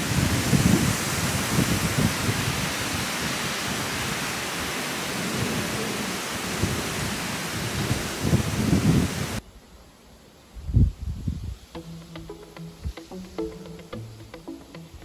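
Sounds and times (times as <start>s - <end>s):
wind blowing: 0.0s - 9.4s, 10.5s - 15.0s
wind gusts buffeting microphone: 0.0s - 9.4s.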